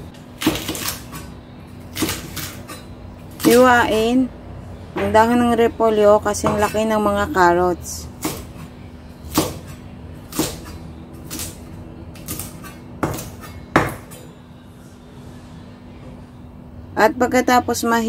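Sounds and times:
cleaver chopping on wooden board: 0:09.3 - 0:09.7, 0:10.3 - 0:10.7, 0:12.3 - 0:14.1.

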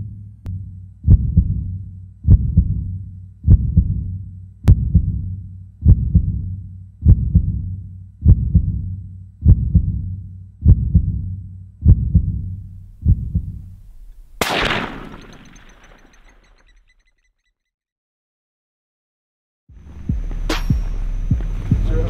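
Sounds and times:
low hum: 0:00.0 - 0:17.0
heartbeat double thump: 0:01.1 - 0:02.9, 0:03.5 - 0:04.1, 0:04.7 - 0:13.9, 0:20.0 - 0:22.0.

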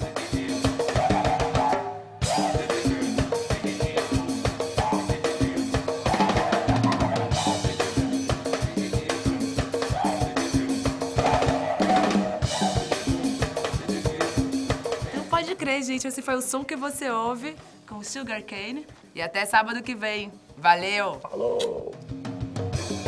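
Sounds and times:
fast drum beat: 0:00.0 - 0:18.6
didgeridoo: 0:00.7 - 0:14.6.

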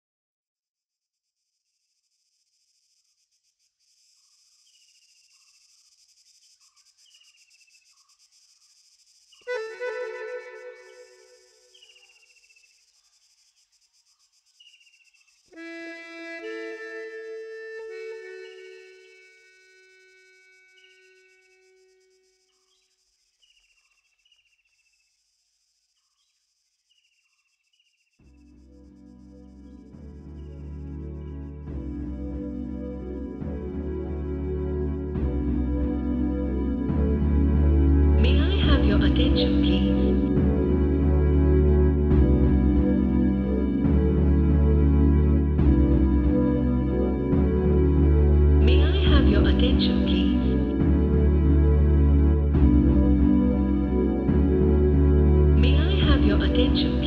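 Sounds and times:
insect-like chirring: 0:00.9 - 0:15.9, 0:16.8 - 0:31.6
high falling whistles: 0:04.7 - 0:15.4, 0:18.5 - 0:24.9
held instrument note: 0:09.5 - 0:11.8.

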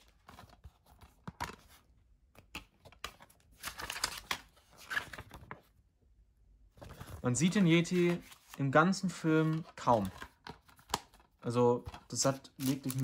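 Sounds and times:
plastic wrap crinkling and tearing: 0:12.6 - 0:13.0.

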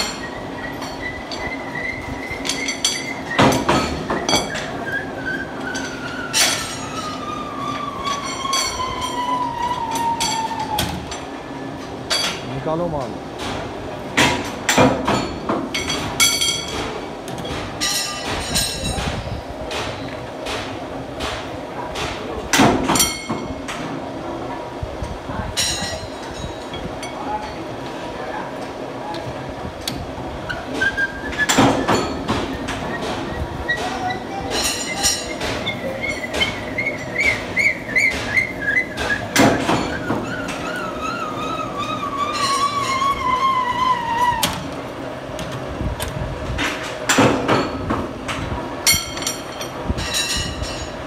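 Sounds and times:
high metallic ringing: 0:00.0 - 0:11.4, 0:17.8 - 0:19.0, 0:23.0 - 0:23.6, 0:34.1 - 0:37.8, 0:40.7 - 0:44.0, 0:48.8 - 0:51.0
metal lathe squealing: 0:00.0 - 0:11.7, 0:30.5 - 0:44.6.

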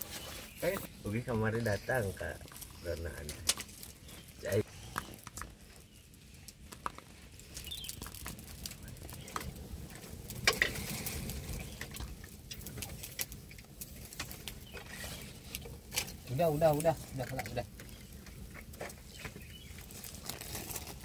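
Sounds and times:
clicks and taps in wooden mortar: 0:00.6 - 0:14.9, 0:15.5 - 0:21.0.

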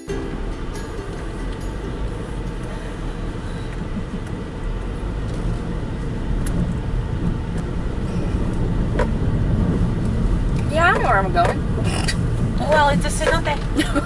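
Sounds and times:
car engine and tyres rumbling: 0:00.0 - 0:14.0.

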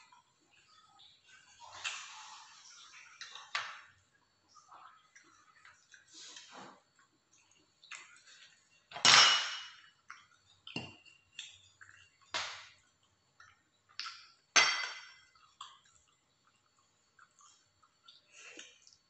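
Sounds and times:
dishes clinking on a table: 0:08.9 - 0:09.9, 0:14.5 - 0:15.3.

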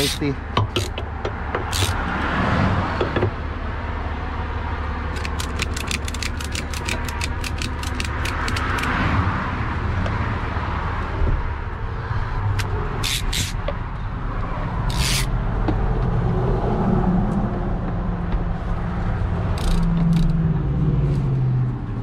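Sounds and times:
sharp clicks of a strap: 0:00.0 - 0:01.0, 0:01.7 - 0:02.0, 0:05.1 - 0:09.0, 0:12.5 - 0:13.6, 0:14.9 - 0:15.3, 0:19.6 - 0:20.4.

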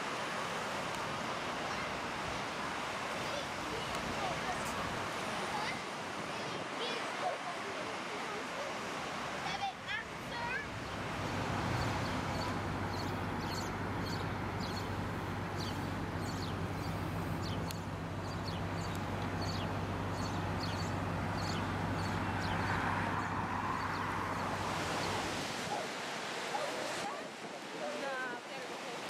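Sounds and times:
rush of traffic: 0:00.0 - 0:29.0
small birds chirping: 0:10.4 - 0:25.8
vehicle engine idling: 0:10.7 - 0:25.1.

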